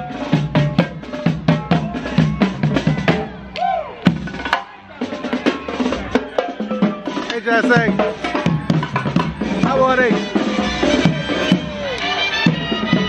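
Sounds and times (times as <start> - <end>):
marching snare drums: 0.0 - 3.4, 4.0 - 13.0
music: 0.0 - 13.0.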